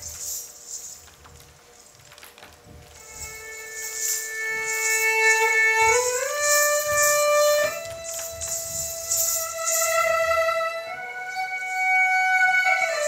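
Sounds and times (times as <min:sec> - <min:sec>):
bowed fiddle sliding notes: 0:02.9 - 0:13.0.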